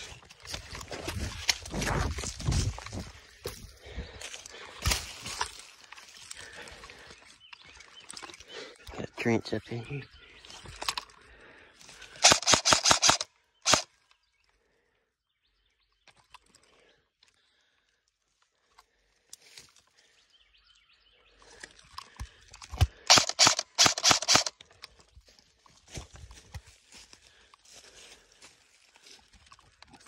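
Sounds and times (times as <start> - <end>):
airsoft rifle shots: 12.2 - 13.8, 23.1 - 24.5.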